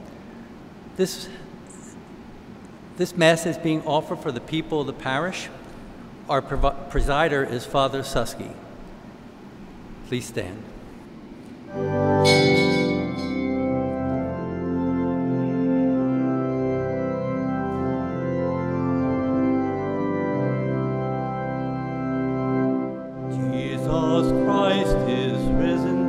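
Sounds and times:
church organ chords: 11.6s - 26.0s.

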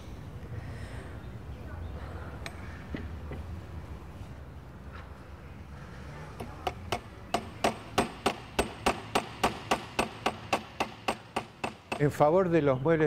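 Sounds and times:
hammer striking nail into wood: 6.6s - 12.2s.

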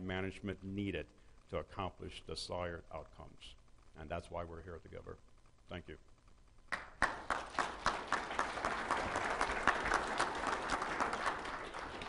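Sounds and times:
audience applauding: 6.7s - 12.0s.

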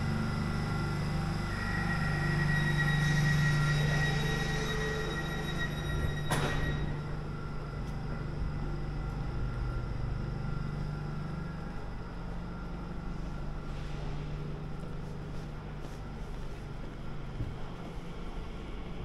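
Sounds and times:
faint high whining tones: 0.0s - 13.5s
train low mechanical hum: 0.0s - 19.0s.

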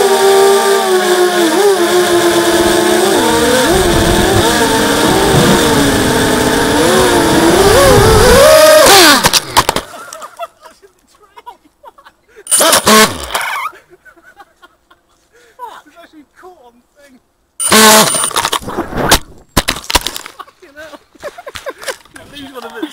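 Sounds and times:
quadcopter motors whining: 0.0s - 9.8s, 12.5s - 13.8s, 17.6s - 19.1s
drone crashing into a tree: 3.5s - 9.9s.

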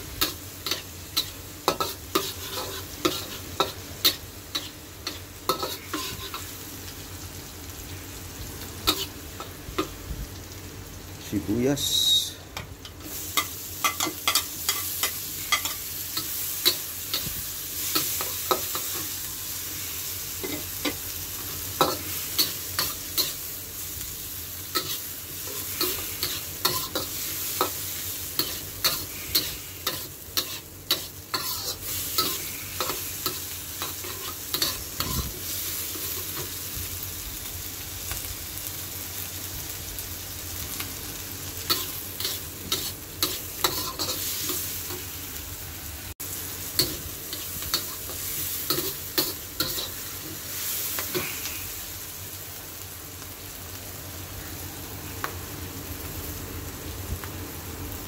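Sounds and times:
onion and garlic sizzling: 0.0s - 58.0s
metal spatula scraping a wok: 0.2s - 6.5s, 28.4s - 36.4s.

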